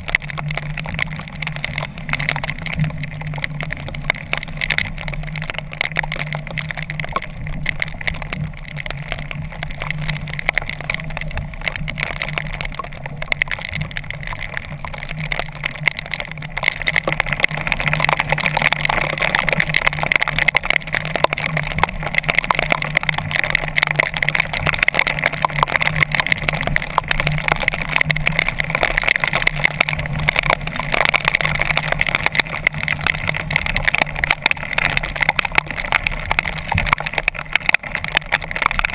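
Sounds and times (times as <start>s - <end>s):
rain and wave spray: 0.0s - 38.9s.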